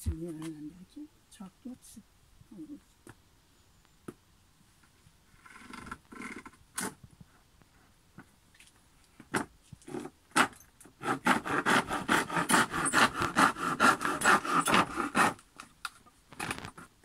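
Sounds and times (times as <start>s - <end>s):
hand tool scraping wood: 5.3s - 7.0s, 9.8s - 15.7s.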